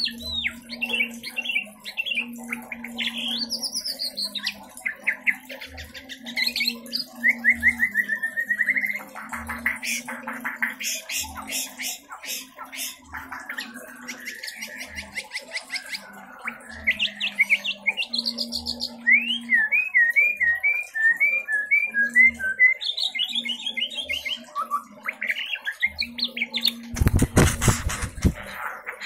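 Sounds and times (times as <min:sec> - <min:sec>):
bird singing whistles and trills: 0:00.0 - 0:09.2, 0:13.5 - 0:26.9.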